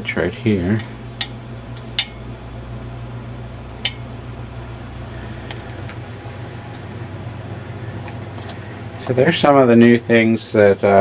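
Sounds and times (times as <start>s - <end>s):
steady low hum: 0.0s - 11.0s
lamp switch click: 3.8s - 4.1s.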